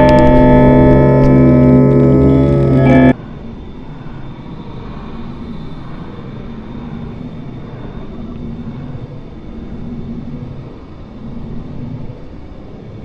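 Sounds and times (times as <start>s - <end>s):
low rumbling noise drone: 0.0s - 3.2s
thin high whine: 0.0s - 3.2s.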